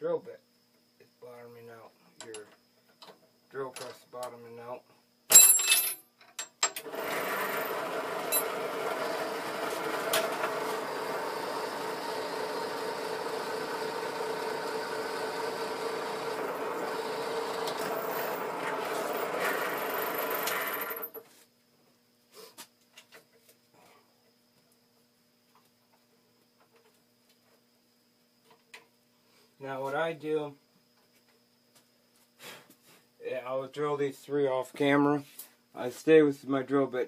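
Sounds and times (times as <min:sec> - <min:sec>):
drill press motor running: 0:06.8 - 0:21.2.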